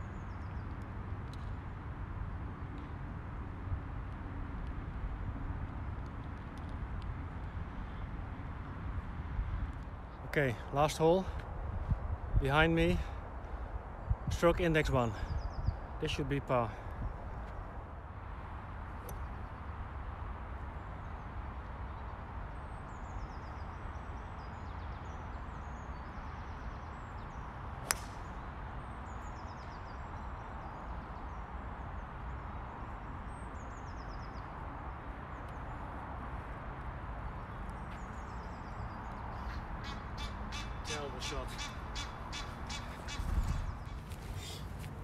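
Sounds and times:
small birds chirping: 20.7 - 45.0
golf club striking ball: 27.8 - 28.3.

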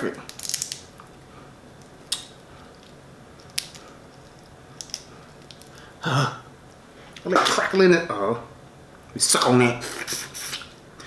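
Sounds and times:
crawfish shell cracking: 0.2 - 1.2, 1.8 - 5.8.

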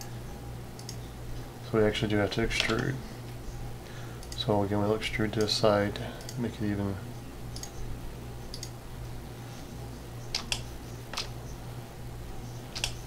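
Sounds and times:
steady low hum: 0.0 - 13.0
mouse and keyboard clicks: 10.3 - 11.4, 12.7 - 13.0.

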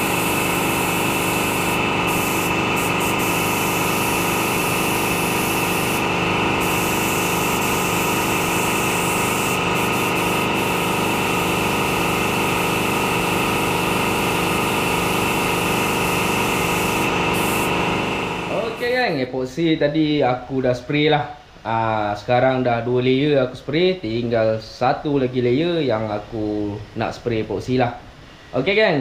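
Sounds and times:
machine droning: 0.0 - 18.9
air spray gun hissing: 0.0 - 19.0.

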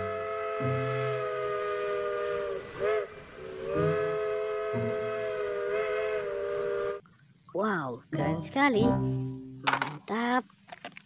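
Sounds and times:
steam locomotive chime whistle: 0.0 - 7.0.

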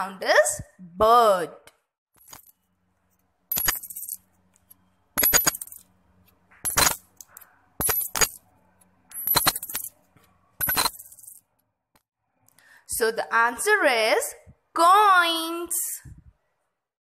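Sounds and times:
coins clinking: 2.2 - 2.6, 3.5 - 5.9, 6.6 - 8.5, 9.1 - 11.4.

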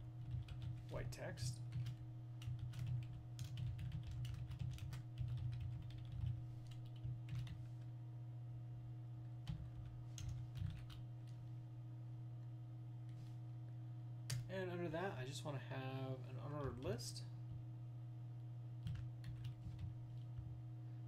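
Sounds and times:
steady low hum: 0.0 - 21.0
typing on computer keyboard: 1.7 - 7.6, 9.5 - 11.0, 18.8 - 20.2.

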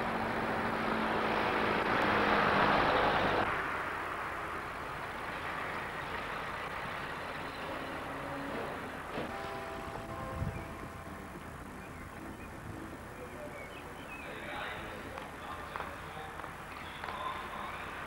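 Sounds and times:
van driving past: 0.0 - 13.3.

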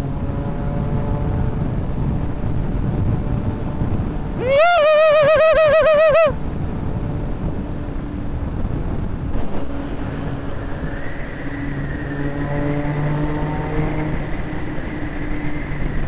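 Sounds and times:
motorcycle engine: 0.0 - 4.5, 11.2 - 15.8
wind and road noise: 0.0 - 16.0.

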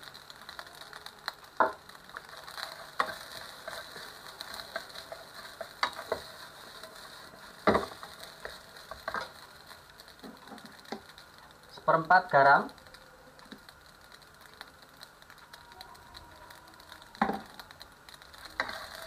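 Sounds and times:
rice sizzling in a pan: 0.0 - 19.0
spatula stirring: 0.1 - 11.5, 16.8 - 19.0.

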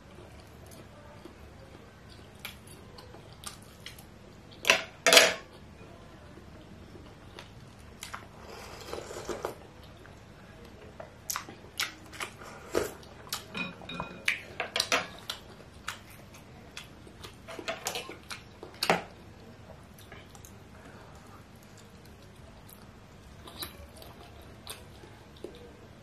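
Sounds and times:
chewing: 0.1 - 4.6, 6.9 - 13.6, 14.2 - 25.8
slurping broth: 8.3 - 9.6.

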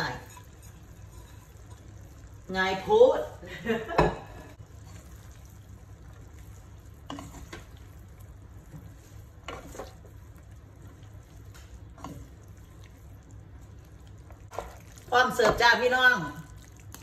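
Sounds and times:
wooden spatulas scraping pan: 0.0 - 1.8, 7.0 - 7.8, 8.8 - 10.1.

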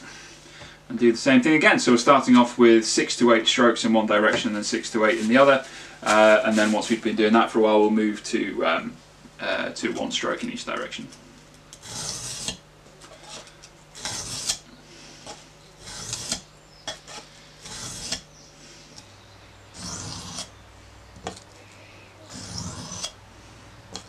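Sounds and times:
knife scraping on sharpening stone: 11.8 - 14.6, 15.8 - 18.2, 19.8 - 20.5, 22.3 - 23.2.

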